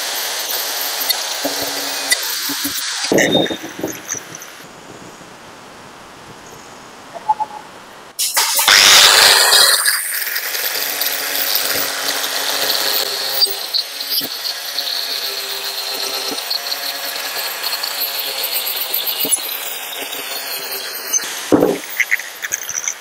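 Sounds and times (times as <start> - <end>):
power tool running: 0.0 - 4.6, 8.2 - 23.0
short knocks: 21.5 - 21.9.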